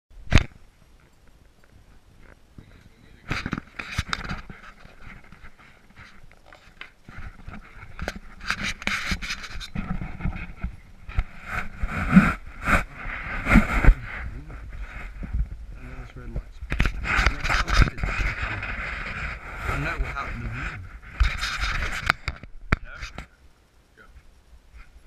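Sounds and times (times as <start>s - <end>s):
camera handling rubbing and knocks: 3.2s - 14.0s, 16.7s - 23.3s
rushes of air: 9.7s - 16.0s.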